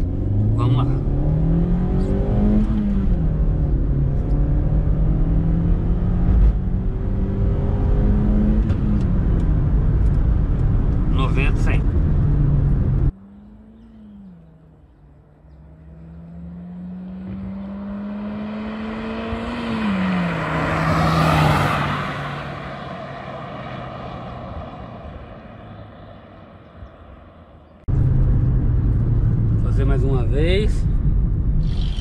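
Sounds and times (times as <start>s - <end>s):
pickup engine accelerating: 27.9s - 32.0s.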